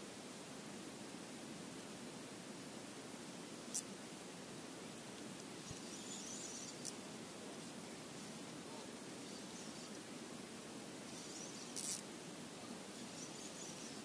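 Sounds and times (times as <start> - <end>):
wind: 0.0 - 14.0
high chirping: 5.6 - 7.0, 11.1 - 12.0, 12.6 - 14.0.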